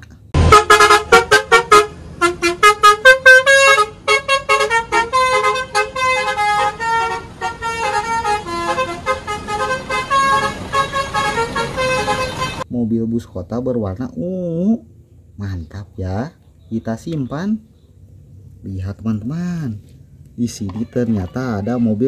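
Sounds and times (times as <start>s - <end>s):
toy electronic horn toots: 0.4s - 12.6s.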